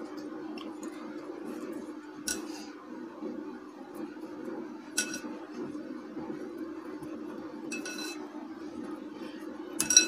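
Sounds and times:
steady low hum: 0:00.0 - 0:10.0
glass bowl clinking: 0:05.0 - 0:05.3, 0:07.7 - 0:08.2, 0:09.8 - 0:10.0.

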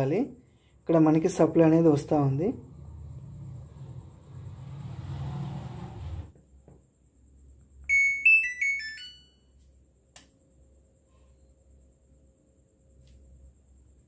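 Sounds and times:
low hum: 0:01.8 - 0:06.3.

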